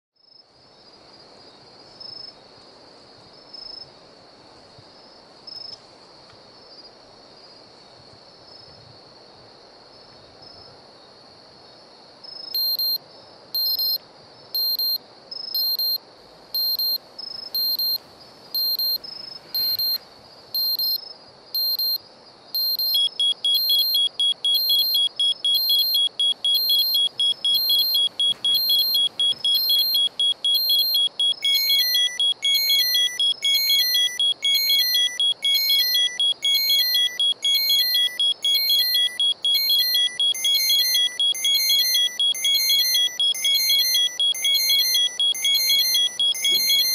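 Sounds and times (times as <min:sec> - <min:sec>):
electronic alarm beeping: 0:12.6 - 0:13.0, 0:13.6 - 0:14.0, 0:14.6 - 0:15.0, 0:15.6 - 0:16.0, 0:16.6 - 0:17.0, 0:17.6 - 0:18.0, 0:18.6 - 0:19.0, 0:19.6 - 0:20.0, 0:20.6 - 0:21.0, 0:21.6 - 0:22.0, 0:22.6 - 0:46.9
rapid high alarm beeping: 0:12.6 - 0:13.0, 0:13.6 - 0:14.0, 0:14.6 - 0:15.0, 0:15.6 - 0:16.0, 0:16.6 - 0:17.0, 0:17.6 - 0:18.0, 0:18.6 - 0:19.0, 0:19.6 - 0:20.0, 0:20.6 - 0:21.0, 0:21.6 - 0:22.0, 0:22.6 - 0:46.9.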